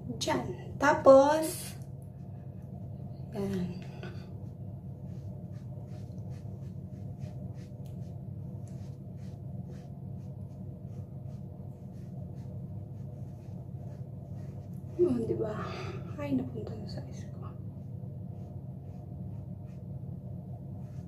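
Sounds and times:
low hum: 0.0 - 21.0
sponge patting skin: 5.0 - 15.4.

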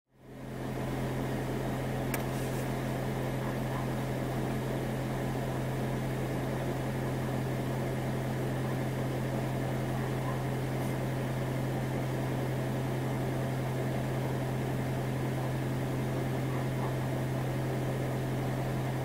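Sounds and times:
low mechanical hum: 0.2 - 19.0
sharp click: 2.1 - 2.3.

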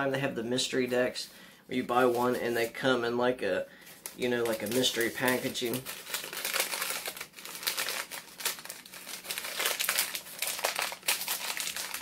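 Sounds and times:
paper box crinkling: 4.0 - 12.0.

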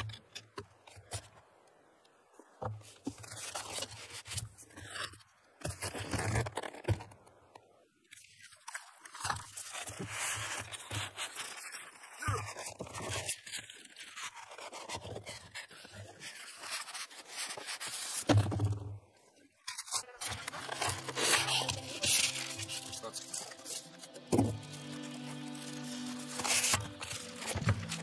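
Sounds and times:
styrofoam and cardboard scraping: 8.7 - 18.9, 19.6 - 28.0
background music: 20.2 - 28.0.

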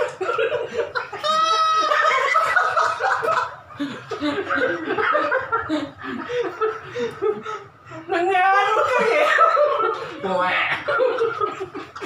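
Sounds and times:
high drawn-out laugh: 0.0 - 7.8
men laughing: 0.0 - 12.0.

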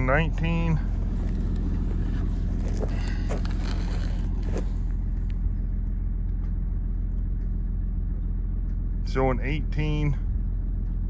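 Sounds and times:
tractor engine droning: 0.0 - 11.0
footsteps on cut grass: 0.8 - 5.0.

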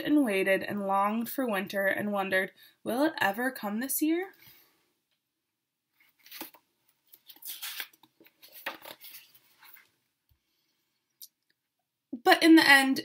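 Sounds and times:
book pages turning: 6.0 - 10.0.

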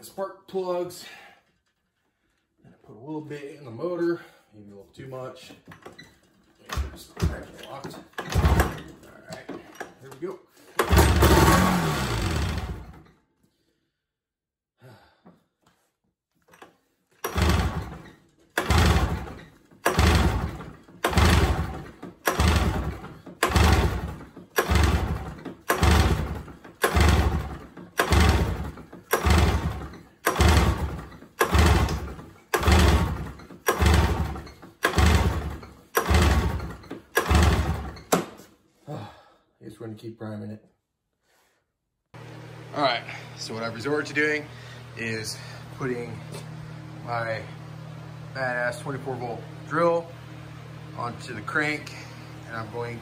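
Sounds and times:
snowmobile pull starter cranking: 5.8 - 13.1, 16.5 - 38.3.

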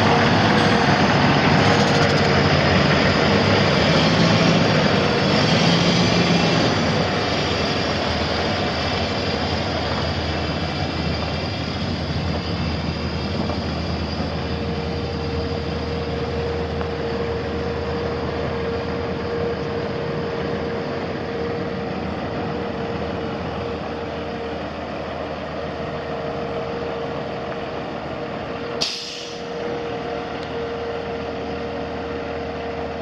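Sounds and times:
diesel truck engine idling: 0.0 - 33.0
steady whine: 0.0 - 33.0
air release hiss: 28.8 - 29.5.

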